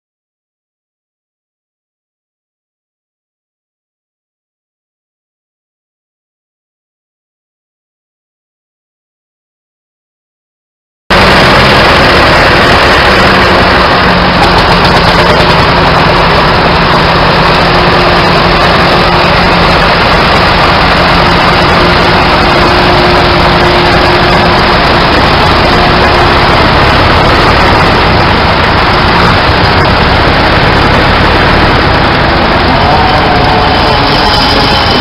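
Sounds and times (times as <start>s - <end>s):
tractor engine running: 11.1s - 35.0s.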